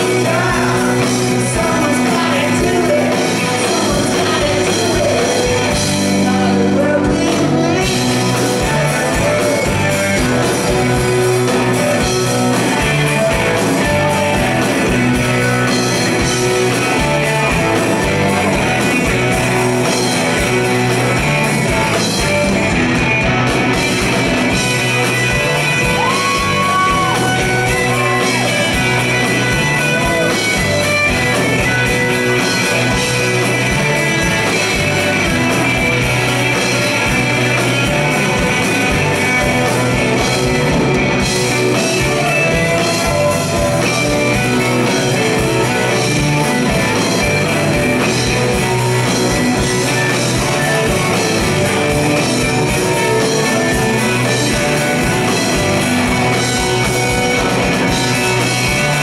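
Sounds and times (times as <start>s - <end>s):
person singing: 0.0s - 14.7s, 24.9s - 40.3s
bass guitar: 0.0s - 59.0s
drums: 0.0s - 59.0s
electric guitars: 0.0s - 59.0s.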